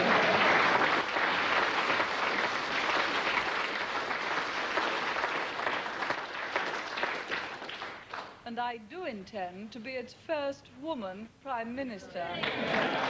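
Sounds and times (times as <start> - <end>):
audience applauding: 0.0 - 8.4, 12.4 - 13.0.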